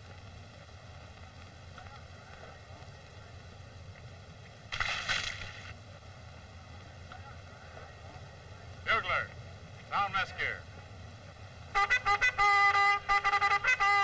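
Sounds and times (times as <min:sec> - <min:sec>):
film soundtrack hiss and hum: 0:00.0 - 0:14.0
paint splashing: 0:04.7 - 0:05.8.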